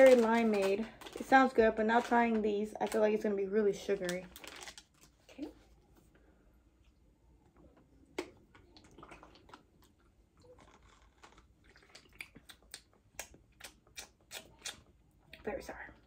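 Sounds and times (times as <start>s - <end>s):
plastic bottles handled: 0.0s - 3.3s.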